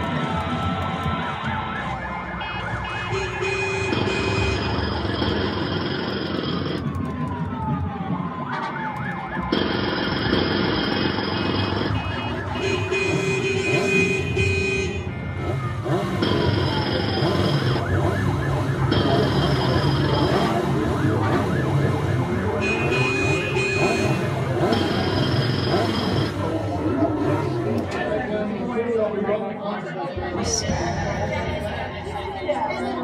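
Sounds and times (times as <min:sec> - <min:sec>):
siren-like falling pitch glides: 0:02.1 - 0:12.8, 0:15.0 - 0:28.0, 0:30.2 - 0:33.0
live electronic music: 0:30.2 - 0:33.0.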